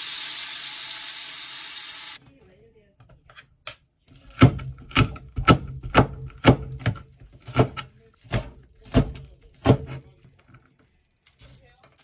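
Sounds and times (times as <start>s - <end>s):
knife chopping on cutting board: 4.3s - 10.0s.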